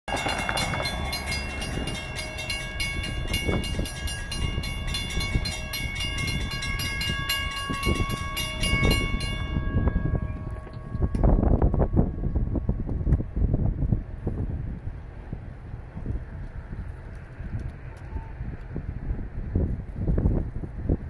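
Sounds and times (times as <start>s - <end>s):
crossing warning bell ringing: 0.1s - 14.0s
low rumble: 0.1s - 21.0s.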